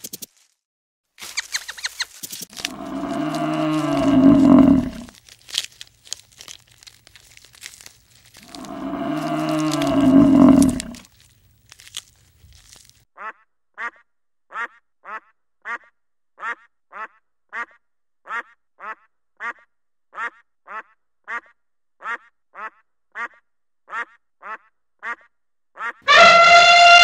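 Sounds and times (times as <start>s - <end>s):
grass being torn and chewed: 1.2s - 13.0s
water buffalo lowing: 2.5s - 5.1s, 8.4s - 11.1s, 26.1s - 27.0s.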